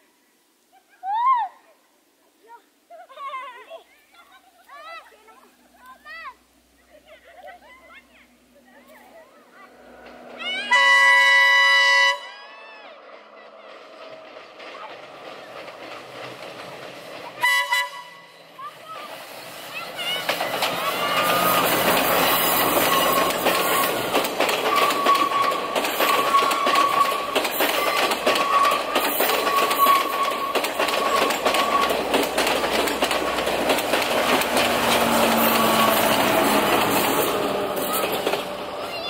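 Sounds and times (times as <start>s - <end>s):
train wheels clattering: 9.7s - 11.4s, 13.0s - 39.0s
high steady squeal: 20.8s - 32.2s.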